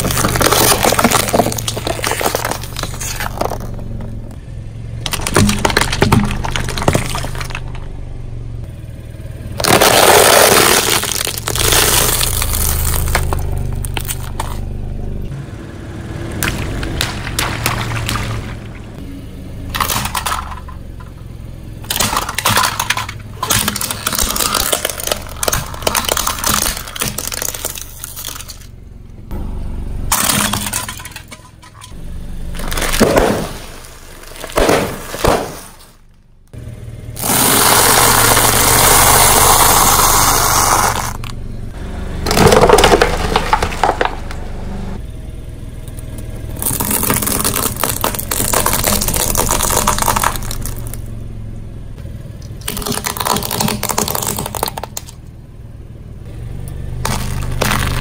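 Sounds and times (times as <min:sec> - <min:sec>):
snack bags crackling and crunching: 0:00.0 - 0:03.7, 0:09.6 - 0:14.6, 0:21.9 - 0:28.7, 0:46.6 - 0:51.0, 0:52.6 - 0:55.1, 0:57.0 - 0:58.0
plastic toys cracking under tyre: 0:00.0 - 0:03.9, 0:05.0 - 0:07.9, 0:09.6 - 0:14.6, 0:16.4 - 0:18.8, 0:19.7 - 0:21.1, 0:21.8 - 0:28.7, 0:32.5 - 0:36.2, 0:37.2 - 0:41.3, 0:42.3 - 0:44.4, 0:46.6 - 0:51.1, 0:52.4 - 0:55.3, 0:57.0 - 0:58.0.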